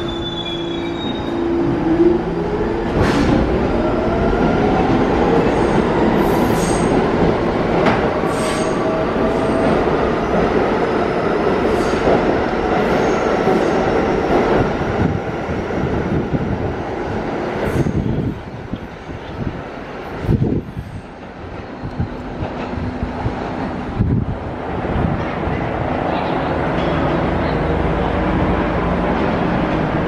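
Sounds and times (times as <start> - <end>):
high wheel squeals: 0.0 - 1.6
subway train rumble: 0.0 - 30.0.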